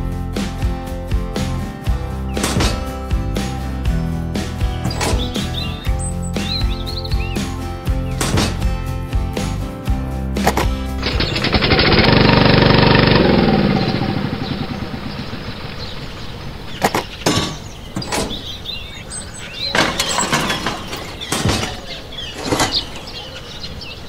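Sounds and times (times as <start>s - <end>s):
sharp clicks and knocks: 2.4s - 3.0s, 4.8s - 5.6s, 8.2s - 8.7s, 10.4s - 11.8s, 16.8s - 18.5s, 19.7s - 23.2s
faint bird chirping: 3.9s - 8.7s, 13.5s - 24.0s
small water pump motor humming: 10.6s - 15.7s.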